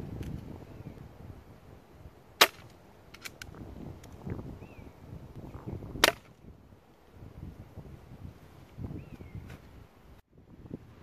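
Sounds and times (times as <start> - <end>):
air pistol shot crack: 2.4 - 2.7, 6.0 - 6.3.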